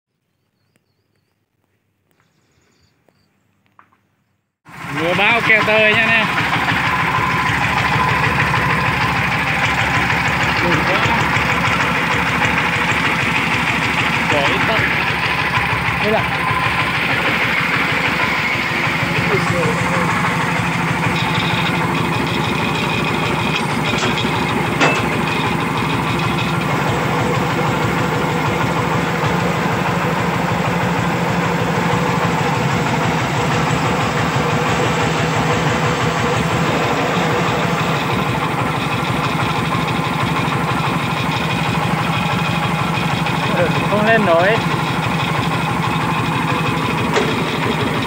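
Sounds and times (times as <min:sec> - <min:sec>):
diesel tractor engine chugging: 0:04.6 - 0:48.0
sharp clack: 0:22.4 - 0:26.0.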